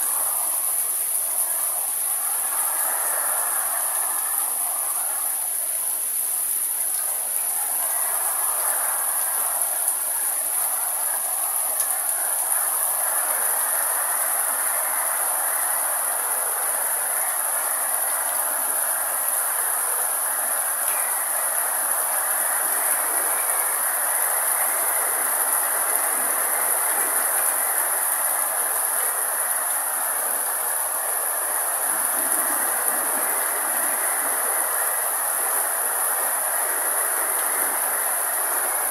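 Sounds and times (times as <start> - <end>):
rain falling on foliage: 0.0 - 38.9.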